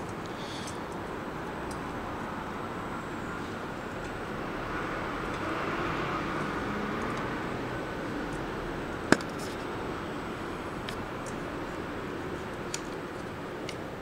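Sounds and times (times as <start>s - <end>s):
background hiss: 0.0s - 0.9s.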